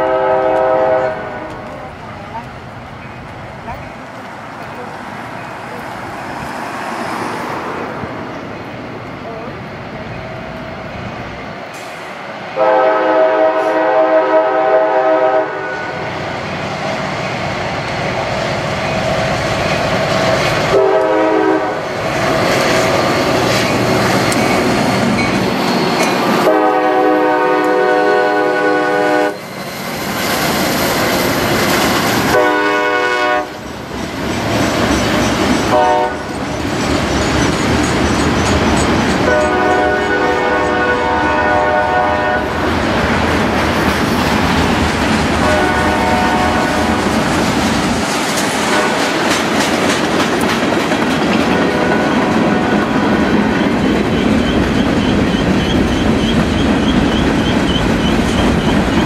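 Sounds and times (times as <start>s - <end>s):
train air horn blasts: 0.0s - 1.7s, 11.8s - 16.1s, 20.6s - 22.0s, 26.4s - 29.4s, 32.2s - 33.6s, 35.6s - 36.3s, 39.2s - 42.6s, 45.4s - 47.2s, 48.6s - 49.2s, 51.5s - 53.2s
diesel locomotive engines: 0.0s - 59.0s
train wheels clattering on rails: 16.4s - 41.4s, 42.5s - 59.0s.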